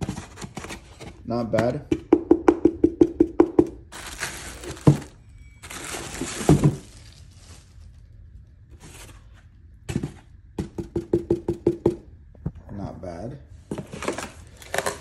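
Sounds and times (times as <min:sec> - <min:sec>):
packing material rustling: 0:03.9 - 0:08.2, 0:13.7 - 0:15.0.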